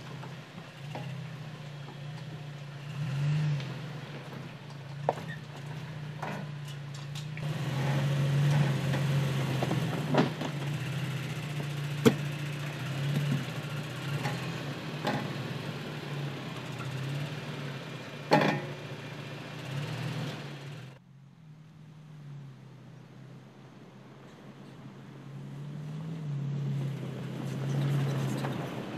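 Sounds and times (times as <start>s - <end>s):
truck engine running at low revs: 0.0s - 28.9s
sharp knocks on rocks: 12.0s - 12.3s.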